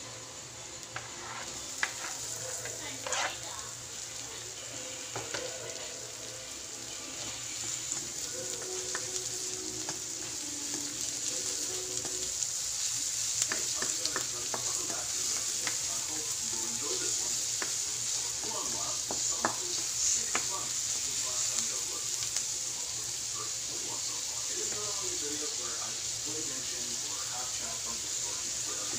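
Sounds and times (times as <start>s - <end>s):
garlic and onion sizzling in oil: 0.0s - 28.9s
spatula scraping a wok: 0.9s - 3.8s.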